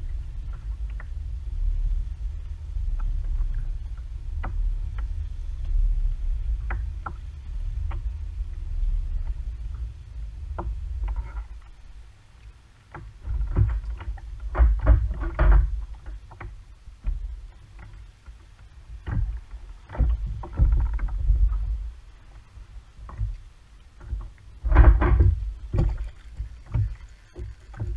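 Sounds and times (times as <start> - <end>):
low rumble: 0.0 - 27.9
fishing gear clattering on kayak: 24.0 - 27.9.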